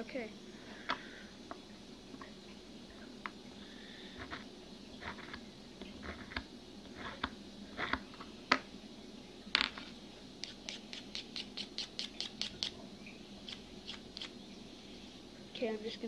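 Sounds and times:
blade scraping grip tape: 13.5 - 14.3.

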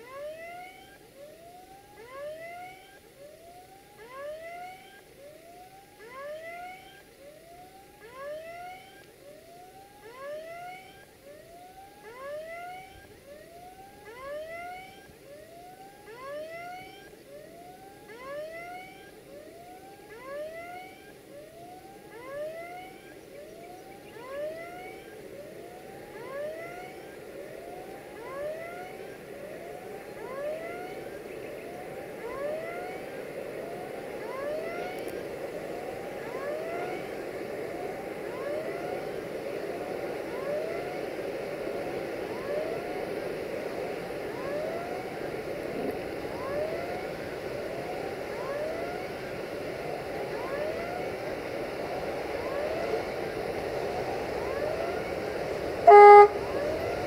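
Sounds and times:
level crossing warning tone: 0.0 - 37.2, 54.2 - 57.0.

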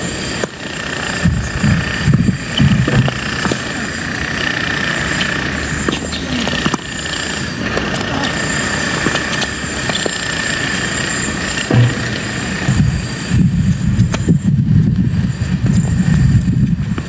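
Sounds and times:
high steady whine: 0.0 - 17.0
loud steady background noise: 0.0 - 17.0
racquets striking tennis ball: 0.4 - 0.7, 2.5 - 3.9, 5.1 - 10.9, 11.5 - 12.9.

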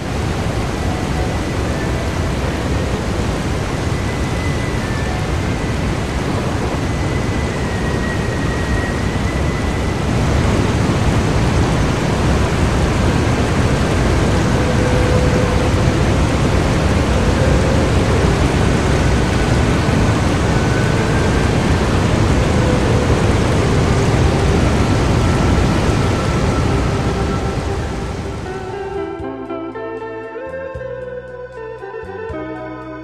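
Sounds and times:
waterfall rushing into pool: 0.0 - 29.2.

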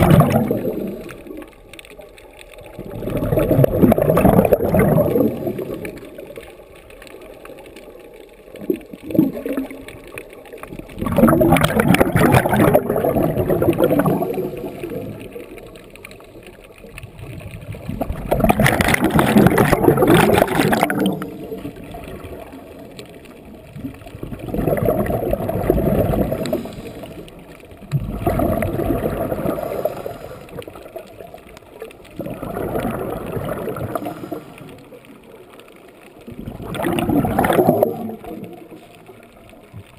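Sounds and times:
bubbles gurgling underwater: 0.0 - 7.3, 8.4 - 39.9
diver breathing through regulator: 29.5 - 30.8, 33.9 - 34.8.

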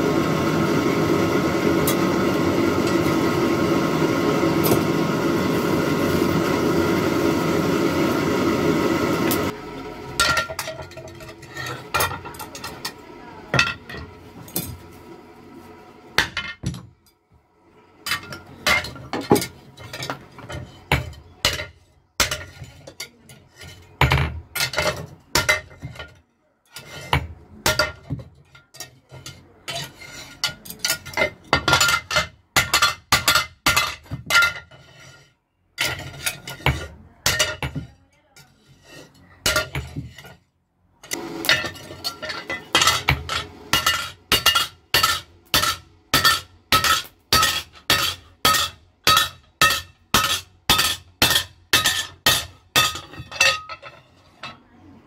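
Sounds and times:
hammer striking metal on anvil: 42.3 - 53.9.

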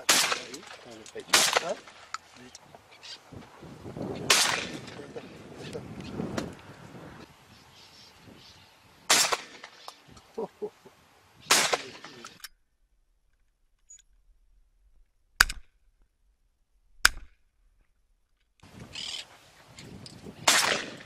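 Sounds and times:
shotgun shots: 0.0 - 2.0, 4.2 - 5.0, 9.1 - 9.8, 11.5 - 12.4, 20.4 - 21.0.

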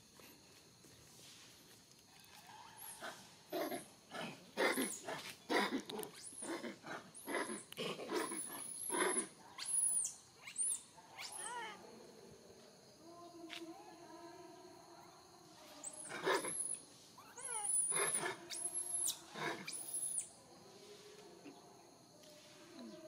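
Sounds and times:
macaques screaming: 8.1 - 11.8, 16.0 - 20.2.

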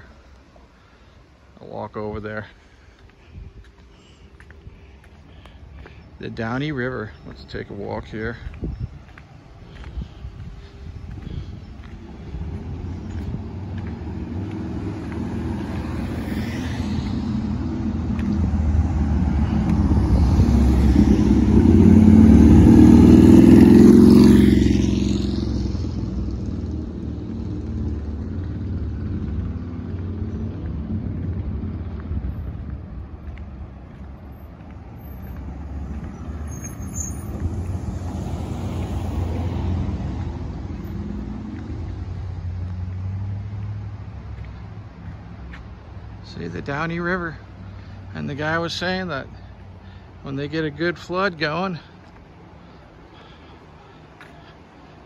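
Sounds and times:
vehicle passing by: 4.6 - 55.0
steady low rumble: 7.1 - 22.7.

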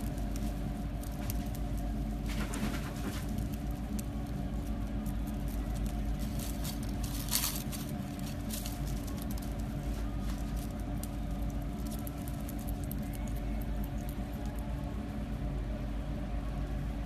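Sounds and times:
leaves rustling: 0.0 - 13.2
rabbits chewing leaves: 0.0 - 17.0
steady low hum: 0.0 - 17.0.

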